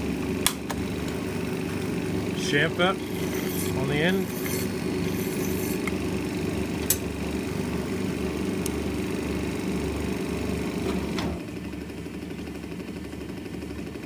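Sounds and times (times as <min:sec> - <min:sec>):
lathe running with low hum: 0:00.0 - 0:14.0.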